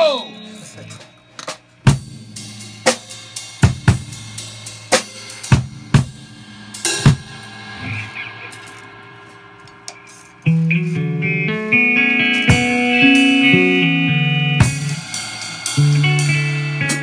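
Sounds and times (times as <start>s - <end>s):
cymbals ringing: 0.0s - 3.6s
drum kit hits: 1.4s - 11.0s, 12.3s - 17.0s.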